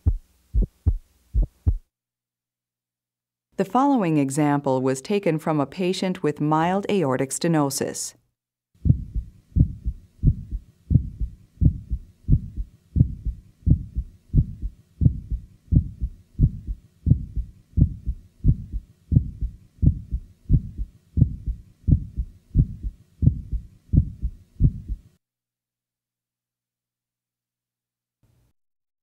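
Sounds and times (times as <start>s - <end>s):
heartbeat through stethoscope: 0.0s - 1.9s, 8.8s - 25.1s.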